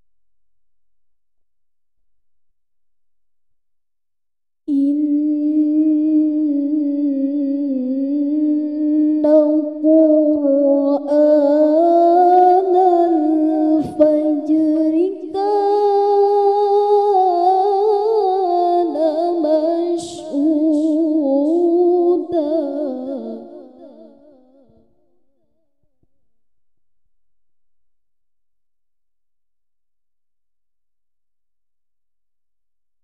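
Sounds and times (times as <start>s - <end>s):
woman reciting melodically: 4.7s - 24.8s.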